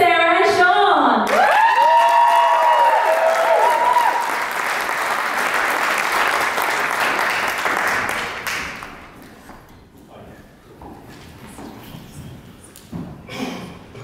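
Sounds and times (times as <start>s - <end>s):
audience applauding: 1.2s - 9.2s
people whooping: 1.3s - 4.6s.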